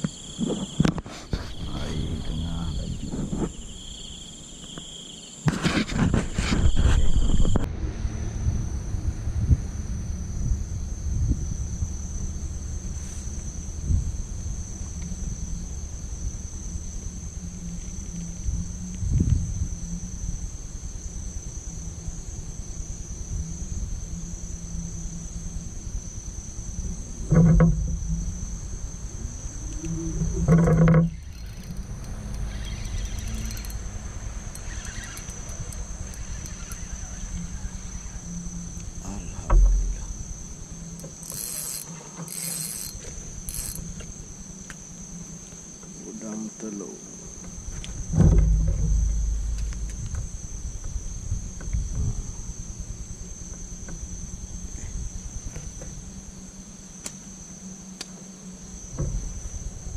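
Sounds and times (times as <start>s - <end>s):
night insects chirring: 0.0s - 59.9s
low rumble: 7.0s - 34.6s, 47.5s - 53.4s
short rising whirr: 31.1s - 39.0s.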